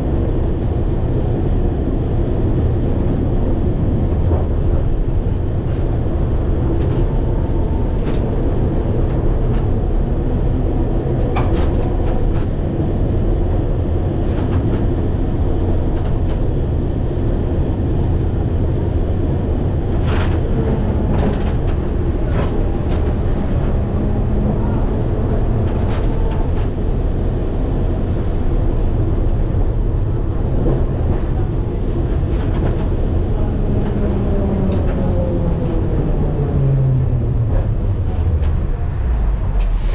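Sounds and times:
tram wheels and motor rumbling: 0.0s - 39.9s.

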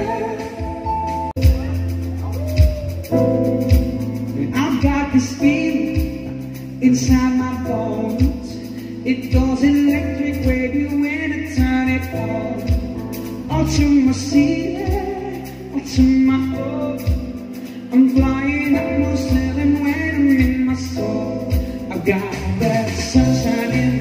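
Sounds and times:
keyboard: 0.0s - 24.0s
person singing: 0.0s - 24.0s
drum beat: 1.4s - 5.2s.

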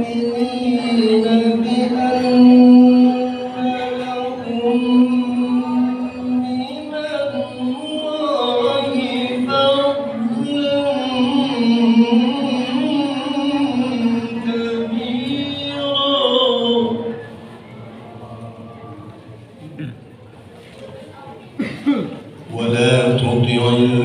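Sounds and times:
man chanting: 0.0s - 17.2s, 22.5s - 24.0s.

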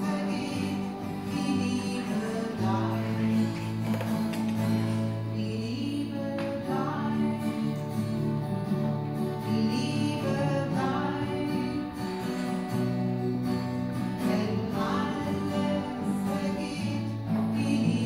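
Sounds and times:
person singing: 0.0s - 13.1s, 14.0s - 18.0s
acoustic guitar: 0.0s - 18.0s.

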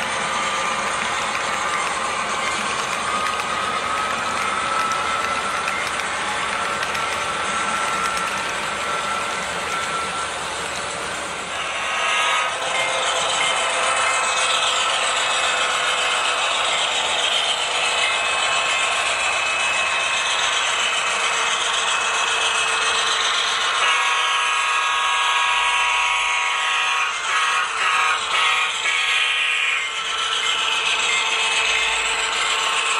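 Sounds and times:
model train motor whirring: 0.0s - 32.9s.

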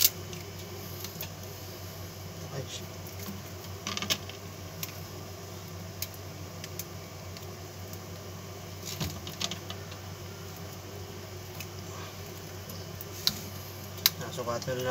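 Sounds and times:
steady low hum: 0.0s - 14.9s
wire ticking and scraping: 2.7s - 5.1s, 8.8s - 10.8s, 11.4s - 14.9s.

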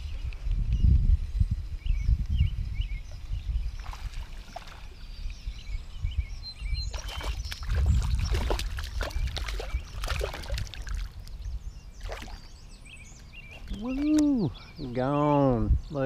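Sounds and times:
fish splashing in water: 6.9s - 11.2s, 12.0s - 12.5s.

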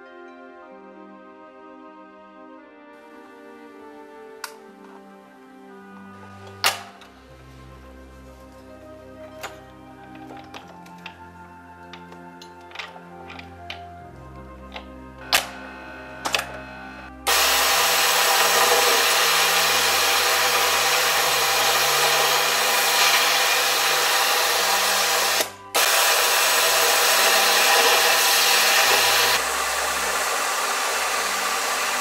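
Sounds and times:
sewing machine whirring: 14.7s - 32.0s.

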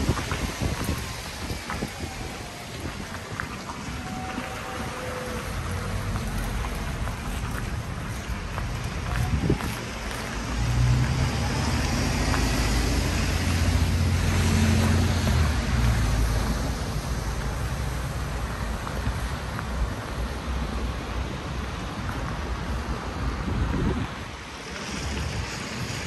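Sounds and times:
vehicle engine rumble passing: 3.7s - 19.3s.

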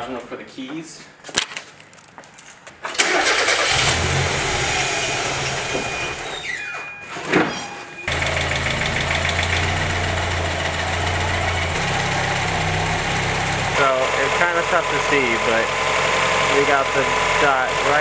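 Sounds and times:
car engine starting and idling: 2.9s - 6.7s, 8.0s - 18.0s.

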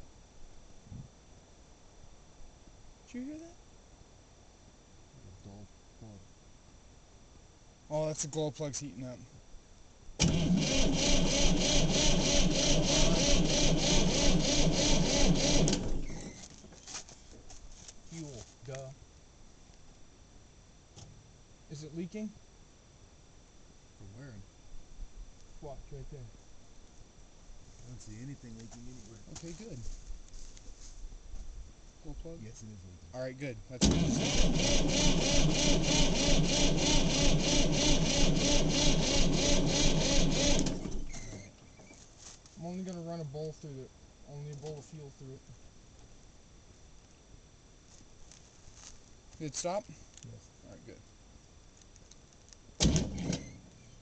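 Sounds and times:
diesel engine cranking on starter: 10.2s - 16.4s, 33.8s - 41.5s.

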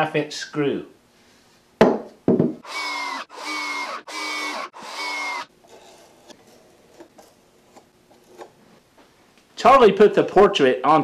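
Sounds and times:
knock: 1.8s - 2.6s
power drill driving screws into wood: 2.6s - 5.5s.

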